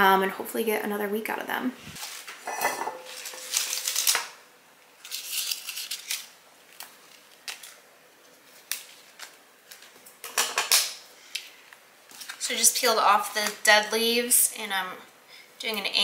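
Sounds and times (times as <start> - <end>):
leaves rustling and crackling: 1.8 - 2.4, 3.0 - 4.4.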